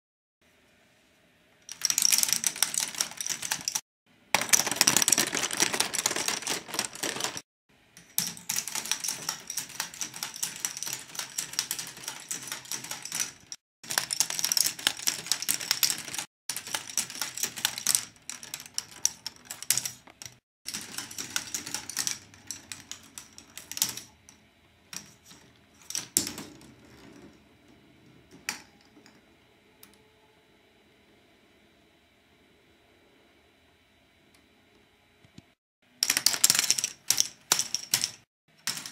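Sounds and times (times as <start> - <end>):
plastic balls clattering through tracks: 4.4 - 7.4.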